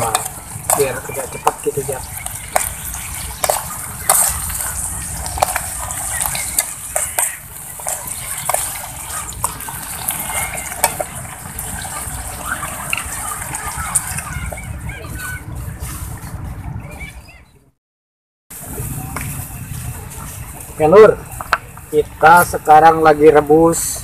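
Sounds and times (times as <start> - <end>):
pan simmering hiss: 0.0 - 14.3.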